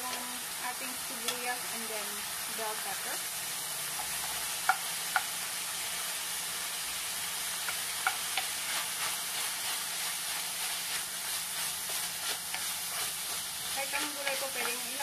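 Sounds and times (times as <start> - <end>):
meat and vegetables sizzling in pan: 0.0 - 15.0
spoon scraping pan: 7.6 - 15.0.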